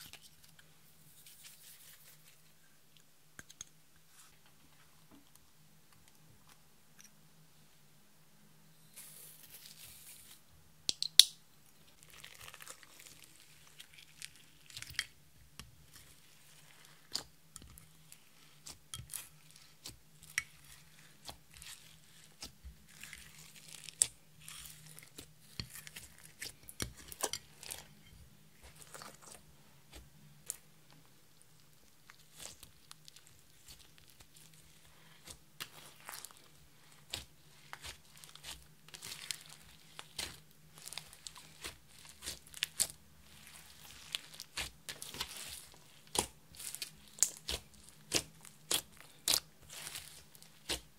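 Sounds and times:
slime squelching and popping: 32.1s - 50.9s.

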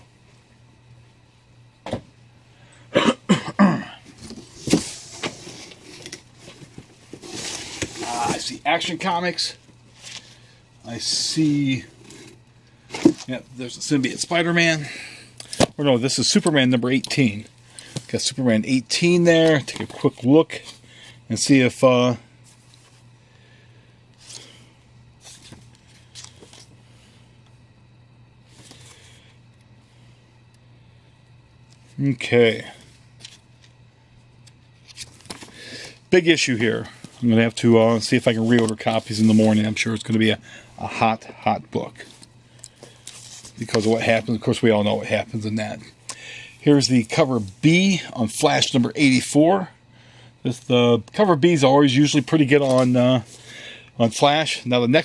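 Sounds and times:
low steady hum: 0.0s - 55.0s
person coughing or grunting: 2.9s - 4.1s
paper pages flipping: 25.2s - 26.7s, 34.4s - 35.5s, 38.2s - 40.2s, 42.0s - 44.0s, 52.2s - 53.0s
paper rustling: 38.2s - 39.8s, 52.2s - 53.4s.

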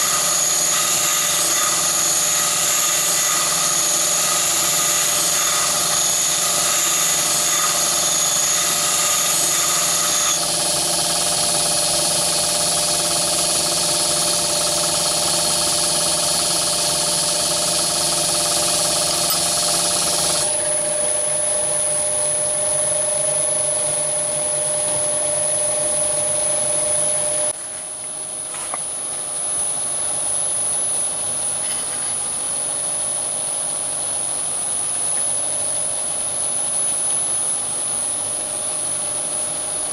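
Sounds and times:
lathe machine hum: 0.0s - 27.6s.

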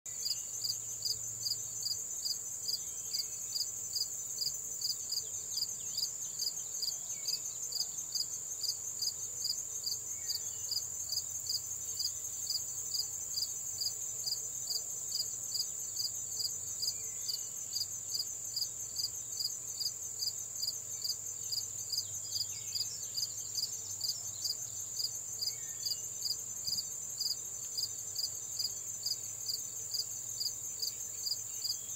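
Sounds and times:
insect chirping: 0.1s - 31.9s
insects buzzing: 0.1s - 31.9s.

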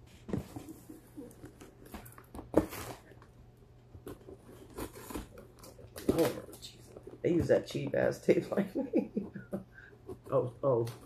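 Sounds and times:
cardboard box rustling: 0.2s - 3.2s, 4.0s - 7.9s
packing tape scraping: 4.0s - 7.0s.

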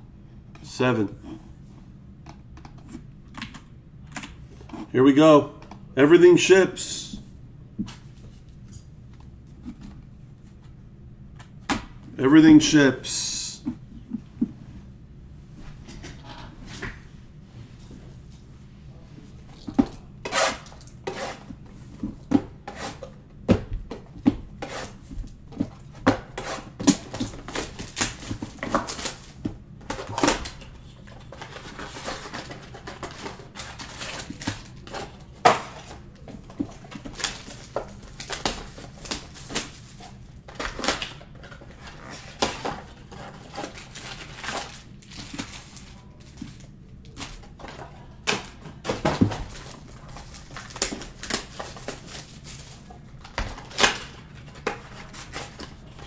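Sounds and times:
low steady hum: 0.0s - 56.0s
packs crinkling and ripping: 31.4s - 47.6s, 49.2s - 56.0s.

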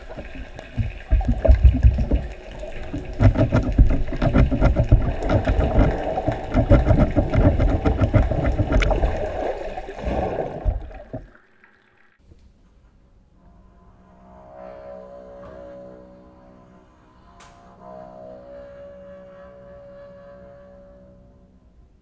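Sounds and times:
water churning underwater: 0.0s - 12.2s.

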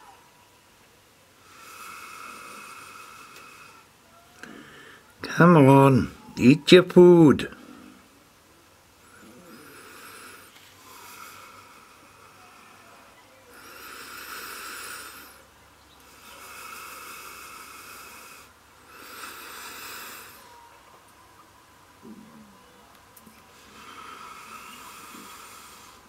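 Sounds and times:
person breathing: 1.4s - 5.2s, 9.0s - 20.7s, 23.5s - 26.0s.

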